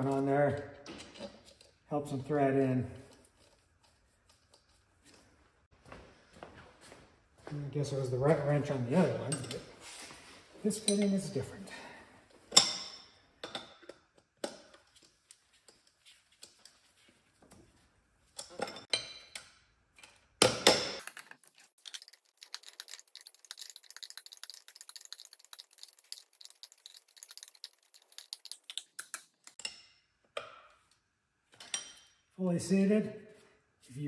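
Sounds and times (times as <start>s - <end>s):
fine rapid ticking: 21.8s - 29.2s.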